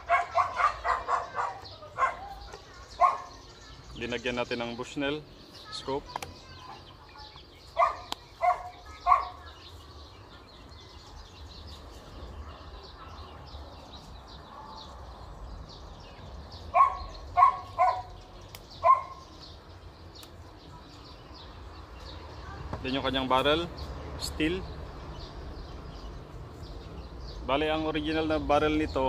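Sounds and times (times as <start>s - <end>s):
dog barking: 0.0s - 3.4s, 7.8s - 9.5s, 16.7s - 18.2s, 18.8s - 19.3s.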